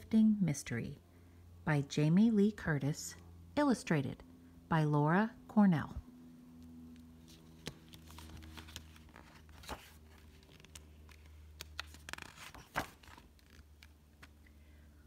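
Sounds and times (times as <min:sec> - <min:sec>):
paper rustling: 0:07.1 - 0:14.4.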